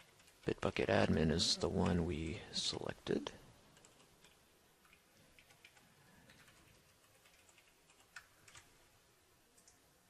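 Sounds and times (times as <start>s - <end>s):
computer keyboard typing: 0.0s - 0.5s, 3.8s - 8.7s, 9.6s - 9.8s.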